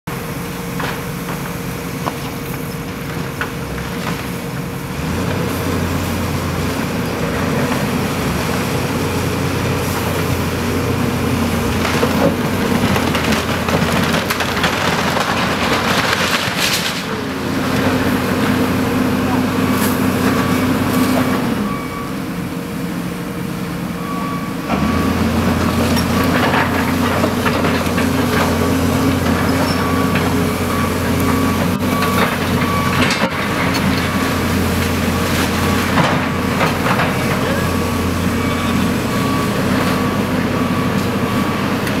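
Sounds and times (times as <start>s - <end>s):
excavator diesel engine drone: 0.1s - 42.0s.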